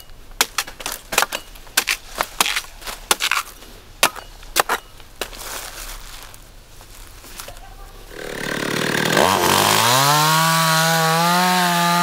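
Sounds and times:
blade chopping into wood: 0.4 - 4.9.

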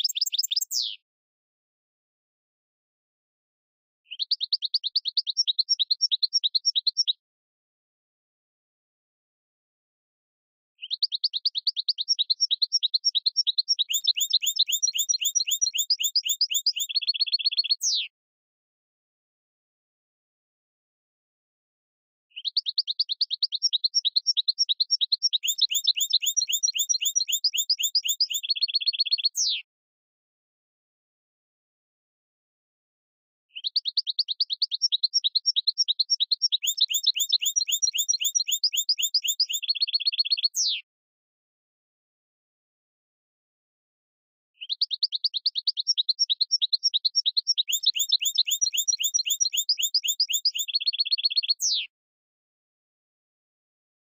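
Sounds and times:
whistled bird-like chirps: 0.0 - 1.0, 4.1 - 7.2, 10.8 - 18.1, 22.3 - 29.6, 33.5 - 40.8, 44.6 - 51.9.

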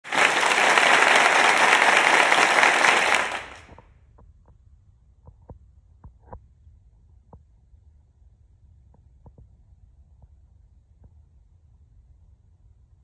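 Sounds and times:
applause: 0.0 - 3.8.

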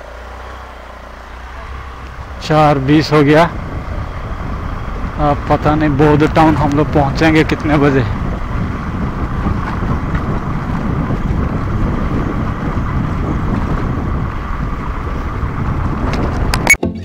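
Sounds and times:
scooter engine running: 0.0 - 16.7
wind rumbling over microphone: 0.8 - 16.7
music: 16.7 - 17.0.

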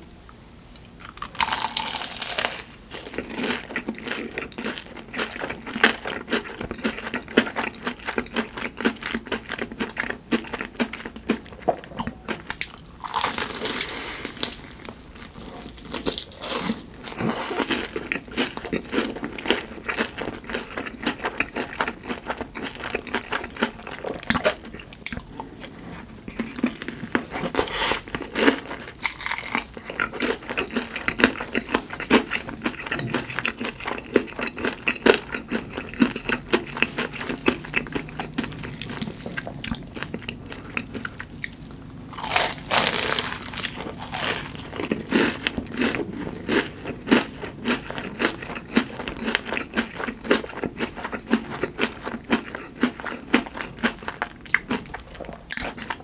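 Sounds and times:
crunchy bites and chewing: 1.0 - 56.0
crackling crunches: 12.0 - 56.0.

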